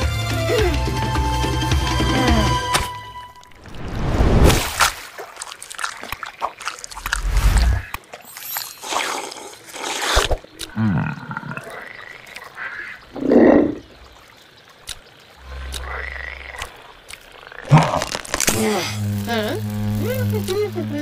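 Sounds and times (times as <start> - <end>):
deep frog croak: 10.7 - 14.1, 15.4 - 18.1.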